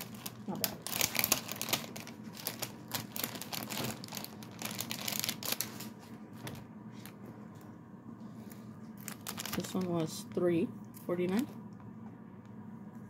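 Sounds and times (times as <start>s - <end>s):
plastic packaging crinkling: 0.0s - 7.2s, 8.9s - 10.4s.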